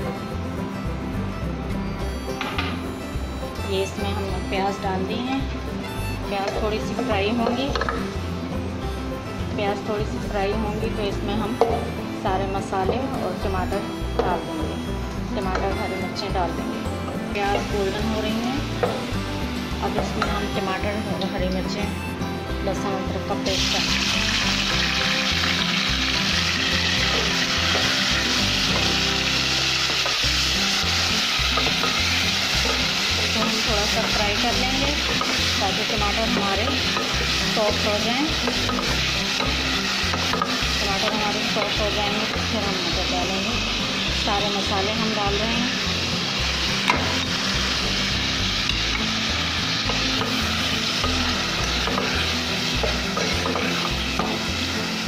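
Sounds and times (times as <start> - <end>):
vegetables sizzling in hot oil: 9.6 - 22.2, 22.8 - 55.0
wooden spoon stirring in pot: 49.7 - 54.4.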